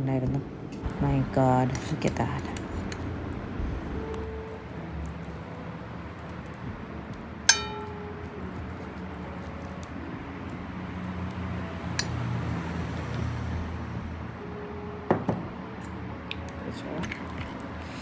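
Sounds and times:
dishware clinking: 7.5s - 8.1s.

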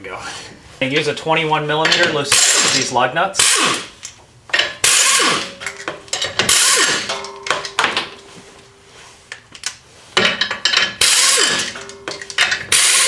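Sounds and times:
impact wrench bursts: 1.9s - 8.0s, 10.8s - 13.0s
falling whine of wrench spinning down: 4.8s - 5.6s, 6.5s - 7.2s, 11.0s - 11.8s, 12.7s - 13.0s
metal clinks: 5.4s - 8.4s, 10.2s - 12.8s.

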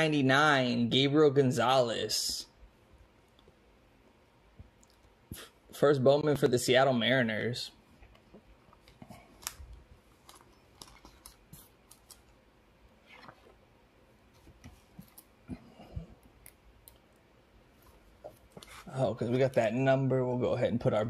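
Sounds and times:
trading card clicks and rustles: 8.2s - 12.4s.

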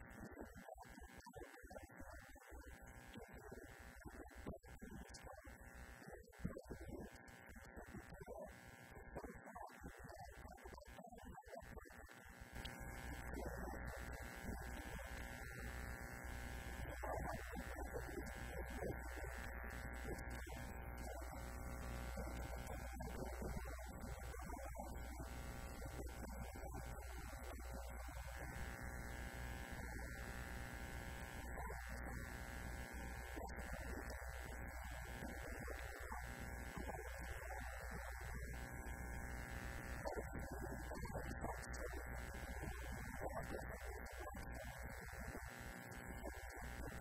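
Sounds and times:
electrical mains hum: 11.5s - 47.0s.

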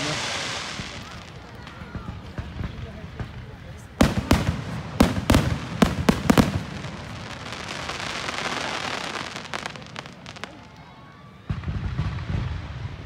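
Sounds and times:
crackling sparks hissing: 0.0s - 1.9s, 4.1s - 10.9s
fireworks bangs: 0.0s - 13.0s.

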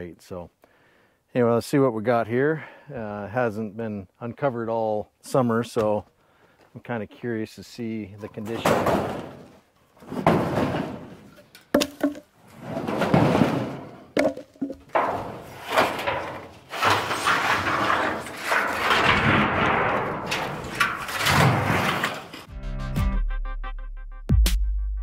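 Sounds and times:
sheet metal scraping and rattling: 8.2s - 22.5s
sheet metal clanks: 8.4s - 22.5s.

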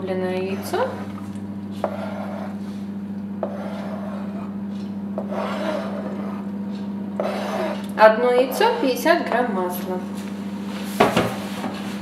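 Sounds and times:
knife scraping cutting board: 0.4s - 1.2s, 1.8s - 7.9s.

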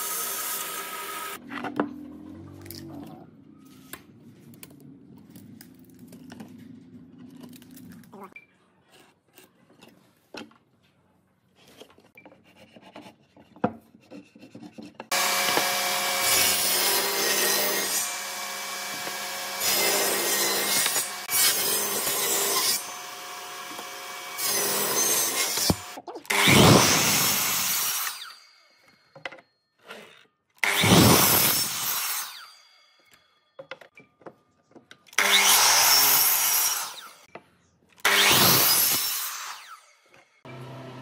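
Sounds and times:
table saw cutting wood: 0.0s - 1.4s, 15.1s - 28.9s, 30.6s - 32.8s, 35.2s - 37.3s, 38.0s - 41.0s.

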